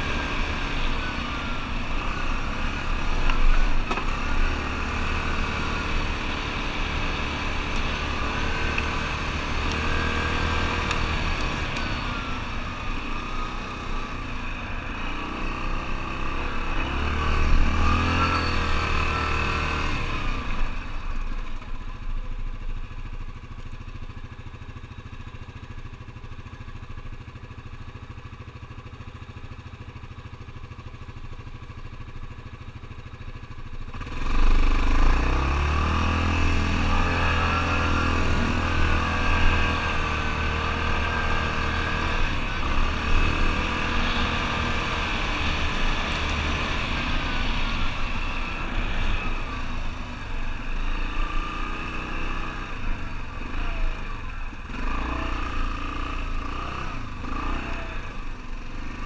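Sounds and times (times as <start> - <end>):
atv engine revving: 0.0 - 21.4, 33.3 - 59.0.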